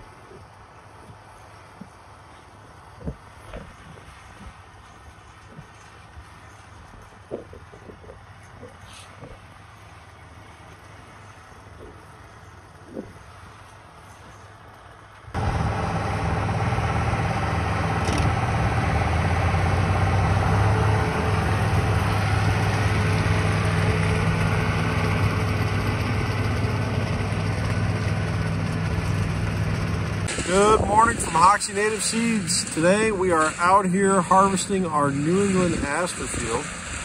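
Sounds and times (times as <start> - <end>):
tractor engine running: 0.0 - 37.0
forage chopper running: 8.4 - 37.0.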